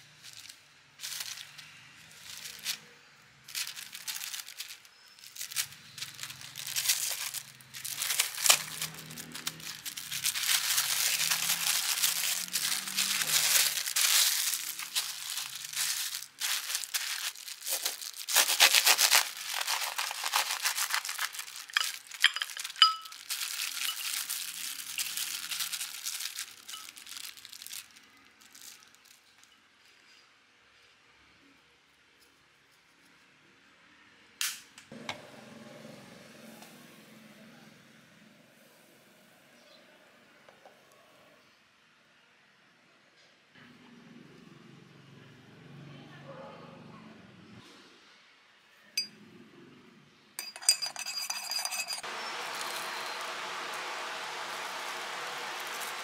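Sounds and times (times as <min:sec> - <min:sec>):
plastic wrap crinkling: 0:00.0 - 0:29.6, 0:50.6 - 0:56.0.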